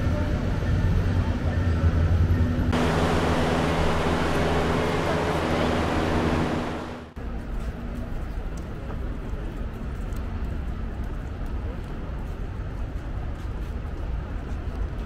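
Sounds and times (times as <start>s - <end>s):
riverside ambience: 2.6s - 7.2s
boat wake rushing on water: 2.7s - 7.2s
motorboat engine: 2.7s - 7.2s.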